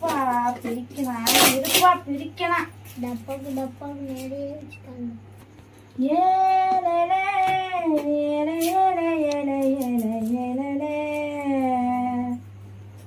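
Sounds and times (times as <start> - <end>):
woman singing a long note: 6.0 - 12.4.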